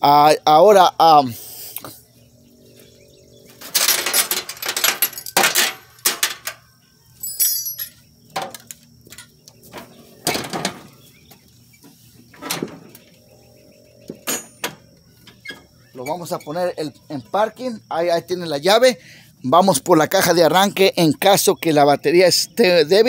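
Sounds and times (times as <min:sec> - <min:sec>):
metallic jingle: 0:03.6 - 0:06.3, 0:07.2 - 0:08.1.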